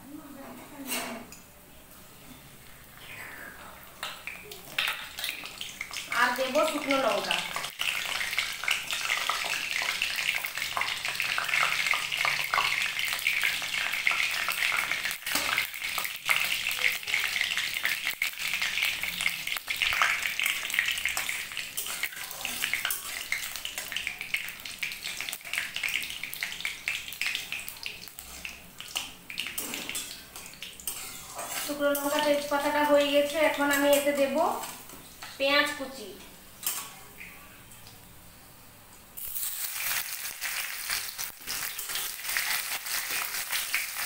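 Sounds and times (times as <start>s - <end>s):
spices sizzling in hot oil: 3.9s - 36.0s, 39.2s - 44.0s
metal spatula stirring oil: 7.5s - 32.4s, 36.6s - 37.0s, 41.1s - 44.0s.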